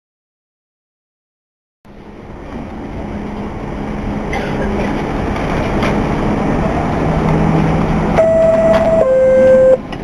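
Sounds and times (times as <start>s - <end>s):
subway train rumble: 1.9s - 10.0s
two-note door chime: 8.2s - 9.8s.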